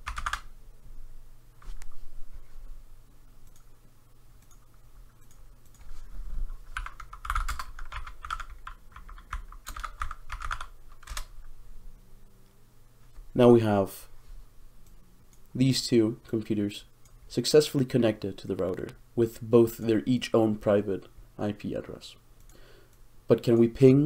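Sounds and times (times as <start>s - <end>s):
typing on computer keyboard: 0.0s - 0.5s, 6.7s - 11.3s.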